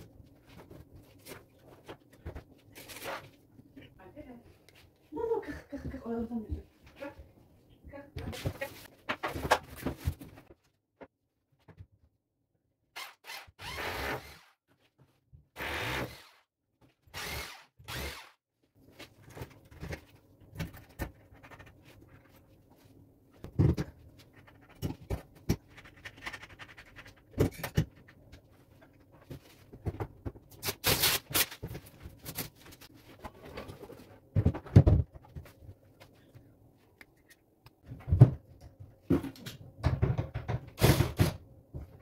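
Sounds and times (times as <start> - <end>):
electric drill boring into tile: 13.0 - 14.5, 15.6 - 16.4, 17.1 - 18.4.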